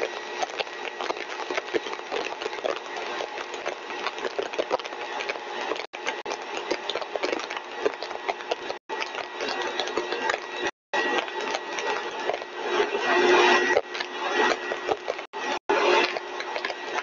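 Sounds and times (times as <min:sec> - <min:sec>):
compressor whirring with whine: 0:00.0 - 0:17.0
rapid small clicks and rattles: 0:00.0 - 0:17.0.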